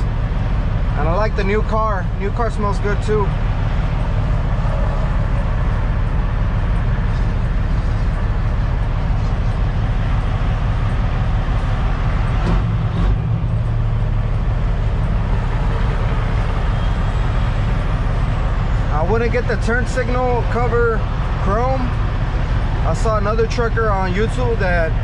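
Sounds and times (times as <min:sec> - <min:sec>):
diesel truck engine running: 0:00.0 - 0:25.0.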